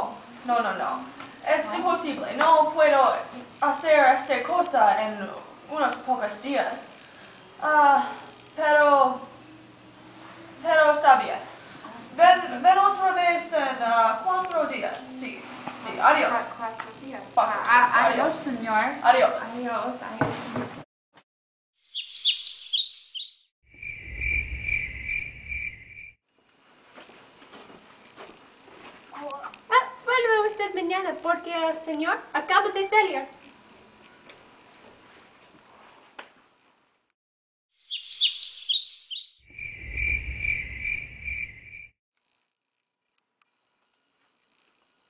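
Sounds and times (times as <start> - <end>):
birds chirping: 21.8 - 26.1, 37.7 - 41.9
crickets trilling: 21.9 - 26.2, 37.8 - 41.9.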